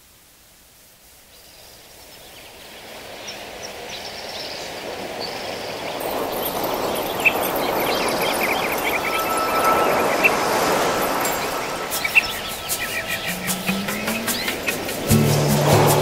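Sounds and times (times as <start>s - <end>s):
birds chirping: 2.8s - 16.0s
ocean waves rushing: 4.6s - 16.0s.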